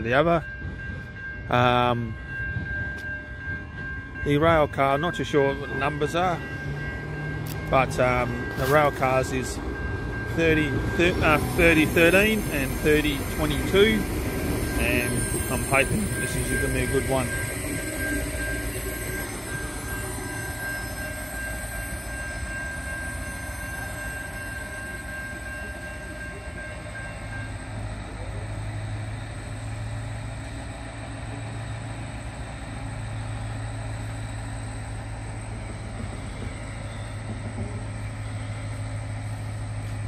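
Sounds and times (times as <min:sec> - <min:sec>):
diesel railcar engine drone: 0:00.0 - 0:40.0
thin high whine: 0:10.4 - 0:40.0.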